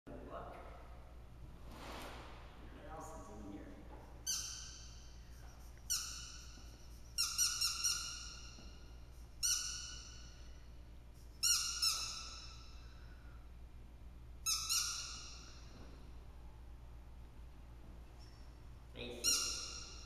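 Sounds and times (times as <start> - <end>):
squeaky dog toy squeaking: 4.2 - 10.4, 11.4 - 12.8, 14.4 - 15.7, 19.2 - 20.0.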